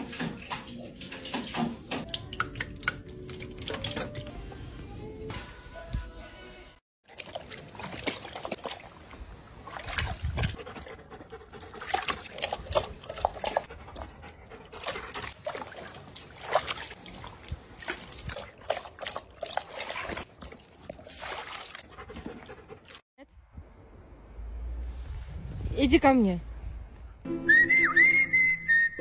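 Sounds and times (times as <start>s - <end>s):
dogs lapping water: 0.0s - 4.4s, 7.1s - 23.0s
small water splashes: 7.0s - 10.9s, 11.5s - 14.0s, 14.6s - 23.0s.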